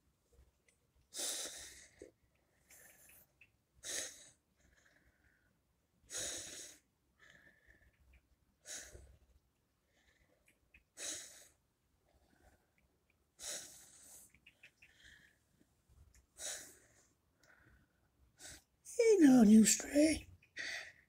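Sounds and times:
person breathing close up: 3.8s - 8.0s, 13.4s - 15.5s, 20.6s - 21.0s.

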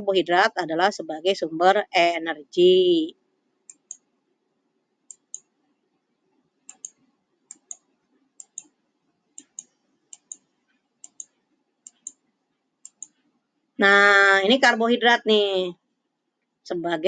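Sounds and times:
computer mouse button clicking: 3.7s - 4.1s, 5.1s - 5.5s, 6.7s - 8.7s, 9.4s - 10.4s, 11.0s - 12.2s, 12.8s - 13.2s.

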